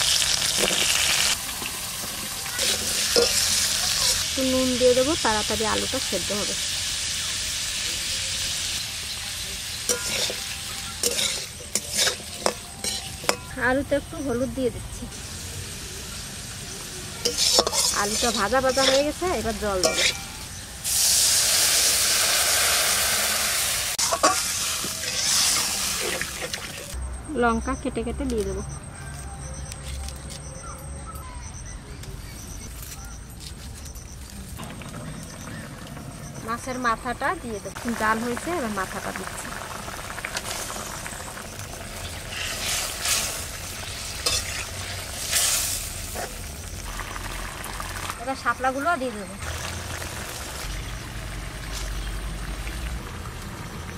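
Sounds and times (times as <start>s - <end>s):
potatoes sizzling in hot oil: 0.0s - 27.0s, 36.6s - 53.9s
metal spatula scraping a wok: 2.1s - 4.3s, 9.6s - 13.5s, 17.2s - 26.9s, 42.0s - 46.5s.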